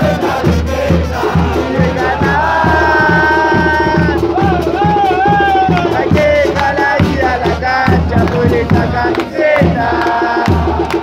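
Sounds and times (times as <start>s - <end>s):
bass drums beating: 0.0s - 11.0s
horn playing: 0.5s - 6.0s.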